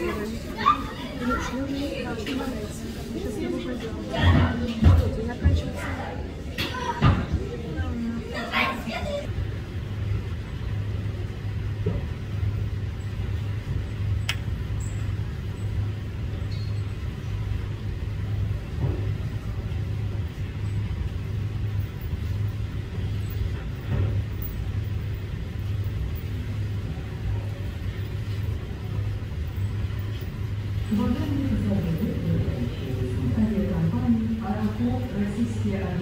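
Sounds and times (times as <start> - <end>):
low mechanical rumble: 4.3 - 36.0
click: 14.2 - 14.5.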